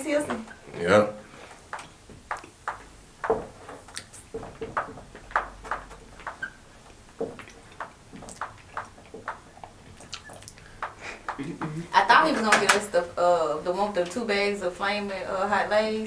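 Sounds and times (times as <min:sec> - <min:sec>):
crackers being chewed: 0:07.4 - 0:11.4.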